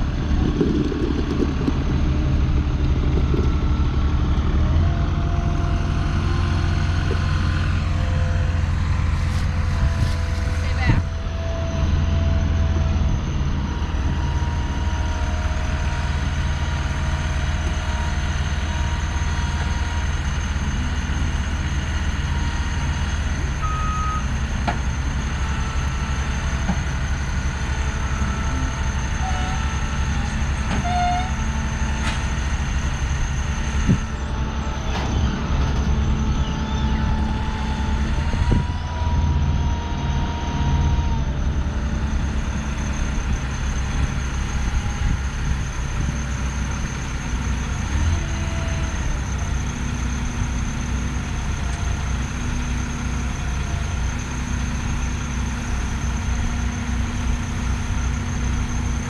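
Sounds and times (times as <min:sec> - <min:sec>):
diesel engines running: 0:00.0 - 0:59.0.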